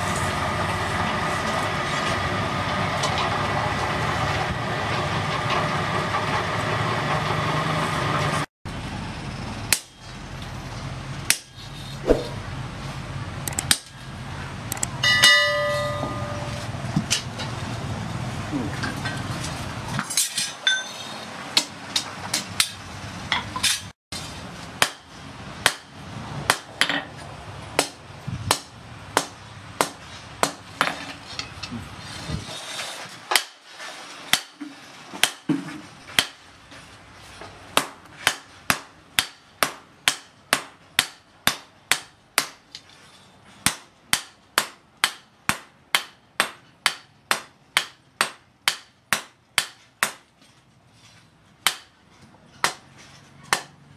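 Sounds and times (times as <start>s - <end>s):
hammer striking blade on anvil: 15.0s - 16.7s.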